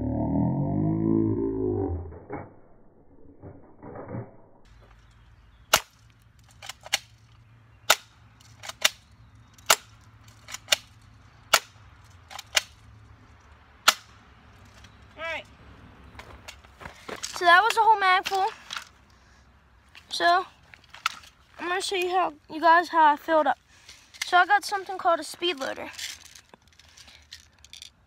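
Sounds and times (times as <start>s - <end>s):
loud warbling pitched sound: 0.0s - 4.7s.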